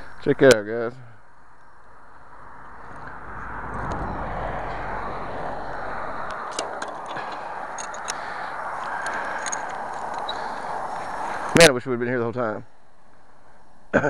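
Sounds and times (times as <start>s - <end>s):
road vehicle passing: 1.0s - 13.9s
sharp clicks: 6.2s - 10.6s.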